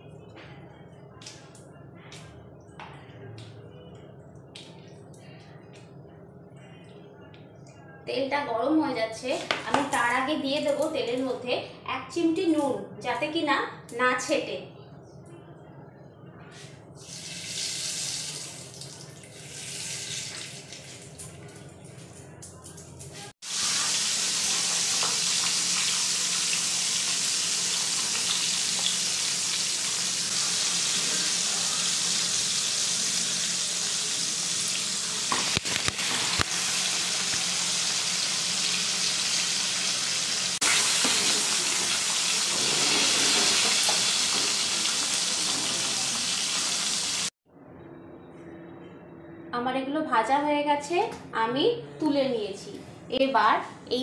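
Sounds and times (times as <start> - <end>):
fish sizzling in oil: 23.4 - 47.3.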